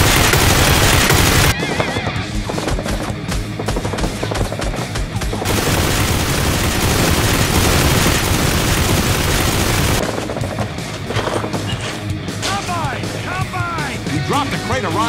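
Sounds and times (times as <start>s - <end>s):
gunfire-like cracks: 0.0s - 1.6s, 5.4s - 10.0s
dense roar of noise: 5.5s - 10.0s.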